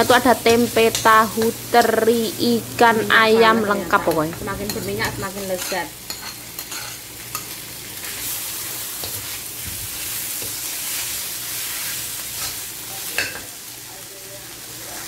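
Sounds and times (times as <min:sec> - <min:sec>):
stew sizzling in oil: 0:00.0 - 0:15.0
metal spoon scraping pan: 0:04.1 - 0:08.4.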